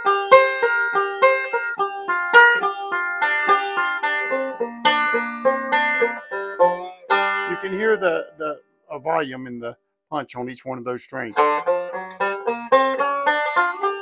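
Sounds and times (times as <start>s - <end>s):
banjo picked note by note: 11.3s - 14.0s.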